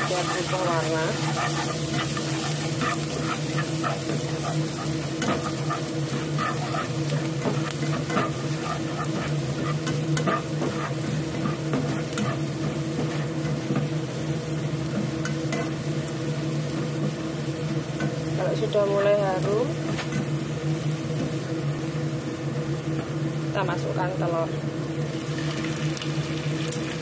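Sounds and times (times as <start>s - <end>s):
spatula scraping pan: 0.0s - 13.4s
garlic sizzling in hot oil: 0.0s - 22.1s, 24.8s - 27.0s.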